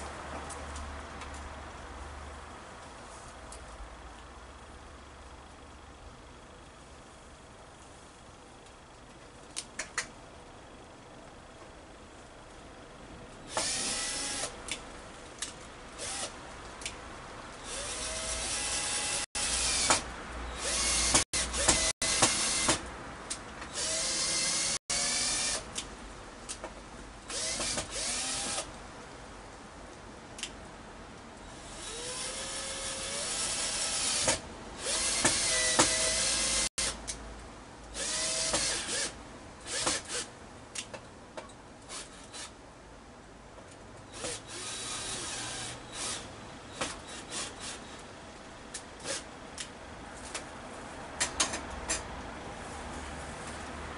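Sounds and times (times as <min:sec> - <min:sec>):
power drill motor whirring: 0:13.5 - 0:14.6, 0:16.0 - 0:16.4, 0:17.6 - 0:22.8, 0:23.7 - 0:25.7, 0:27.3 - 0:28.7, 0:31.6 - 0:37.0, 0:38.0 - 0:40.3, 0:44.1 - 0:46.3.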